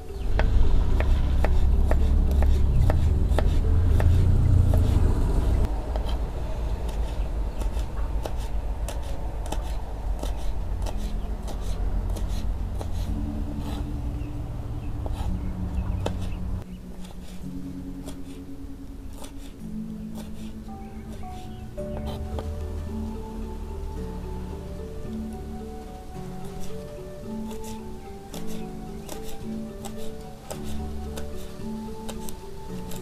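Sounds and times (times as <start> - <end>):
low rumble: 0.0 - 16.8.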